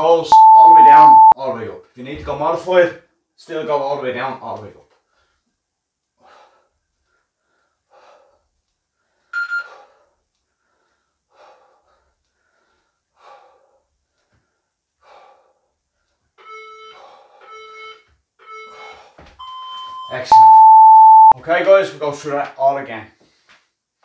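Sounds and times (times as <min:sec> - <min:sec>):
short electronic beeps: 0:00.3 - 0:01.4, 0:17.5 - 0:21.4
heavy breathing: 0:06.2 - 0:16.2, 0:16.9 - 0:17.6, 0:18.6 - 0:19.4.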